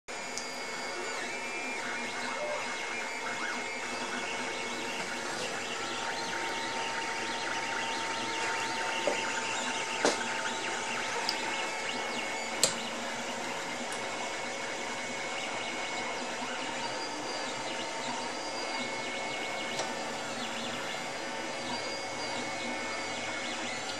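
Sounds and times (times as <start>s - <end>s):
stepper motors whirring: 0.1s - 23.9s
sharp clicks: 12.4s - 12.9s.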